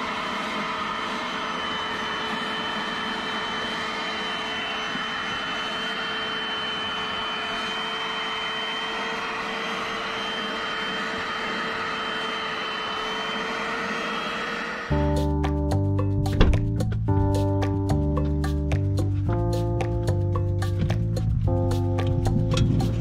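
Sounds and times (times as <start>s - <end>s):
carpet cleaner motor whining: 0.0s - 14.9s.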